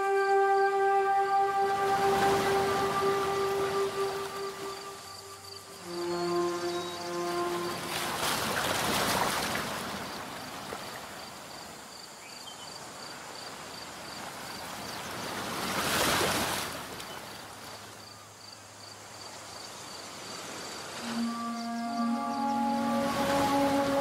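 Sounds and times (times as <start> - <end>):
faint high pulsing tone: 0.0 - 8.8, 21.0 - 24.0
waves washing in: 0.8 - 11.6, 14.3 - 17.8, 20.2 - 24.0.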